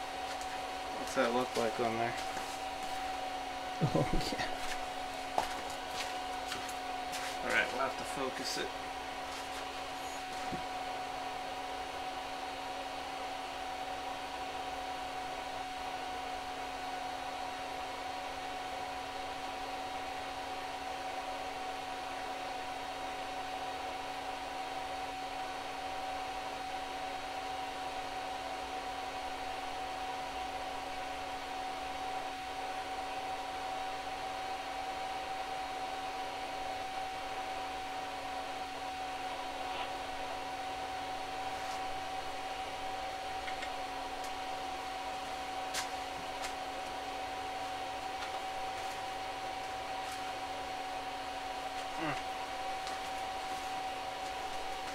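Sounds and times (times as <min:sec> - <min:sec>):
electric fan whirring: 0:00.0 - 0:54.9.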